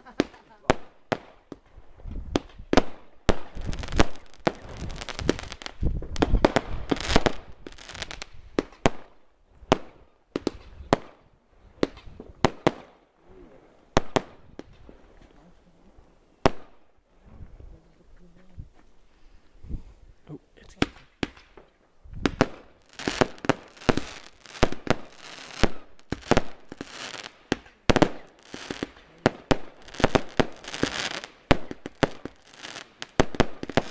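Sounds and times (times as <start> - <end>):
fireworks crackling: 0.0 - 15.4, 20.7 - 33.9
fireworks bangs: 2.2 - 11.2, 20.7 - 33.9.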